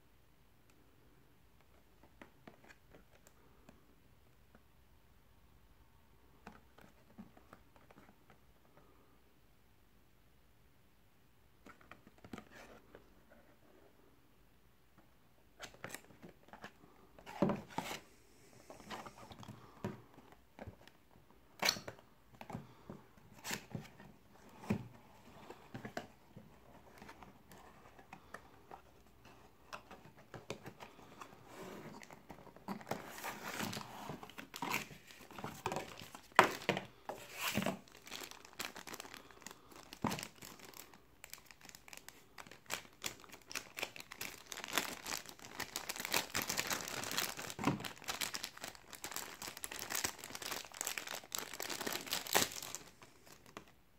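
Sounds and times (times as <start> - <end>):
plastic bag crinkling: 34.6 - 53.5.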